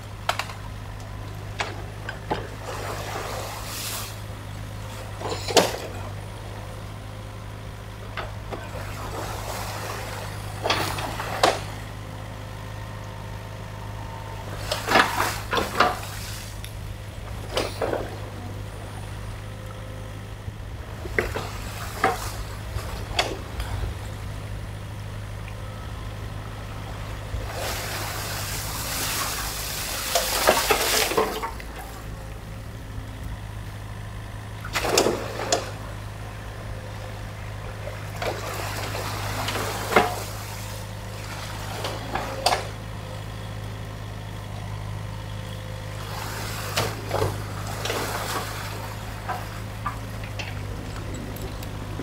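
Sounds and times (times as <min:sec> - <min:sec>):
diesel engine running: 0:00.0 - 0:52.0
water rushing: 0:01.3 - 0:06.4, 0:08.5 - 0:11.9, 0:14.4 - 0:19.0, 0:26.6 - 0:32.5, 0:34.6 - 0:36.0, 0:37.5 - 0:42.8, 0:45.9 - 0:52.0.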